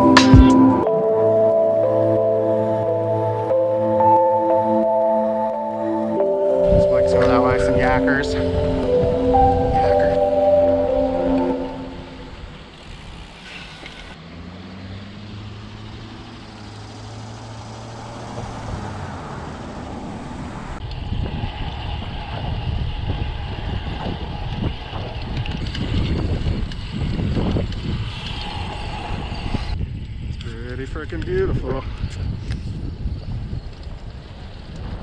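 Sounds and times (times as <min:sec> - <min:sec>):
tyre and road noise: 0:00.0 - 0:35.0
wind buffeting microphone: 0:18.0 - 0:35.0.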